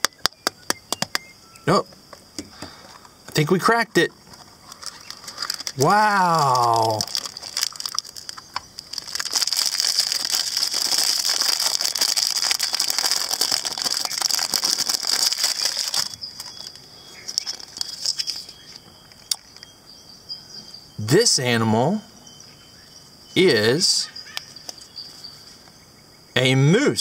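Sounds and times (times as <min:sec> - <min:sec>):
foil wrapper crinkling: 0:04.2 - 0:19.4.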